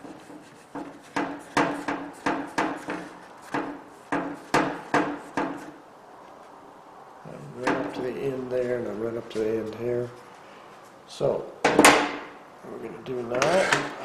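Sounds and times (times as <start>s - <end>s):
tool knocking on metal tray: 0.8s - 5.6s, 7.6s - 8.0s.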